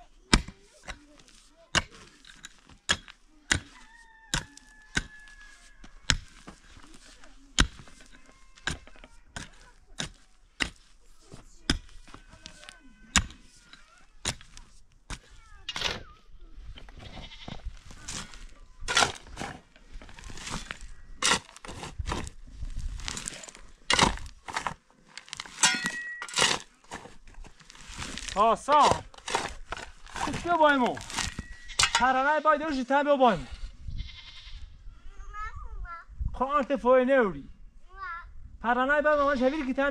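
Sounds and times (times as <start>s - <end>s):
shovel scraping soil and stones: 0.0s - 34.5s
metal tool striking stony earth: 0.3s - 16.1s, 16.7s - 32.4s
faint livestock bleating: 16.9s - 17.7s, 33.8s - 34.8s.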